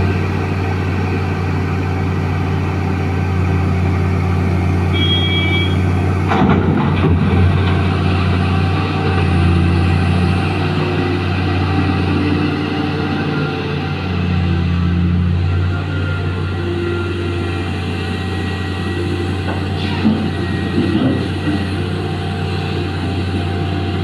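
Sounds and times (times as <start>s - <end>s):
heavy diesel engines running: 0.0s - 24.0s
brief high tone: 4.9s - 5.9s
boulders crashing into truck bed: 6.3s - 7.8s.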